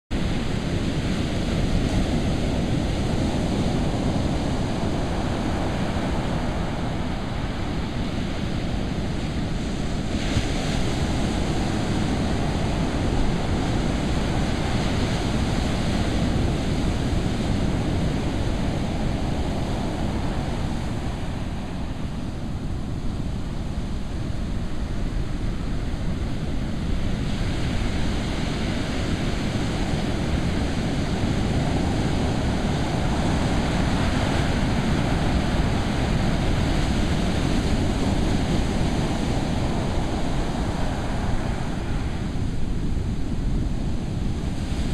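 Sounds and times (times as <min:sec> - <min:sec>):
ocean waves washing up a beach: 0:00.1 - 0:44.9.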